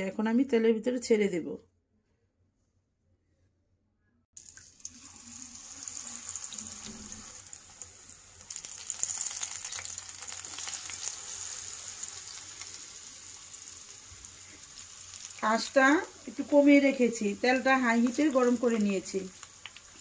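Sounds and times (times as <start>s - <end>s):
food sizzling in hot oil: 4.4s - 20.0s.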